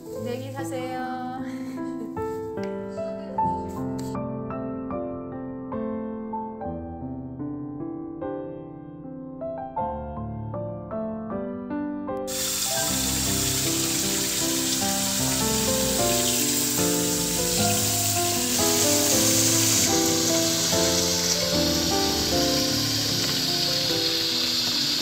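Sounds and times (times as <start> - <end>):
piano music: 0.0 - 25.0
tap water running and splashing: 12.3 - 25.0.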